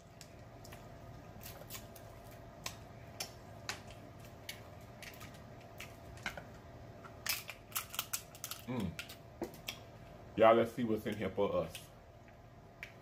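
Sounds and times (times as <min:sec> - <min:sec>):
faint hum: 0:00.0 - 0:13.0
crab shell clicking and cracking: 0:02.6 - 0:09.9.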